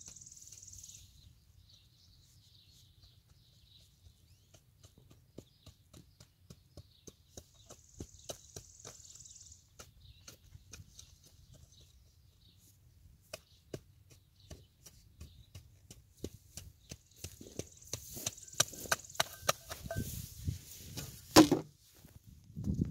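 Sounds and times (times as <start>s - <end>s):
garden hoe chopping into soil: 13.2s - 21.8s.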